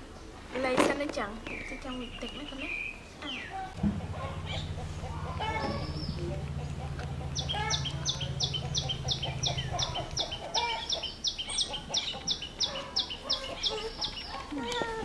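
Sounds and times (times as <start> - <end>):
bird chirping: 1.4 - 15.0
low steady hum: 3.7 - 11.3.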